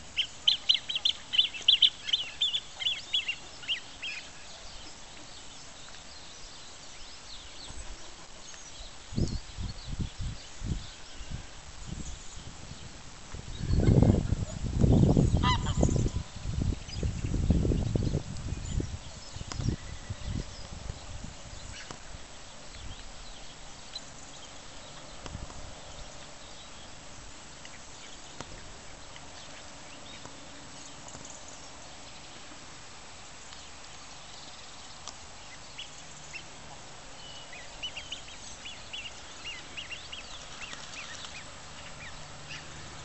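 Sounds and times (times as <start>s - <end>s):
outdoor background noise: 0.0s - 43.0s
ducks calling: 15.4s - 16.2s.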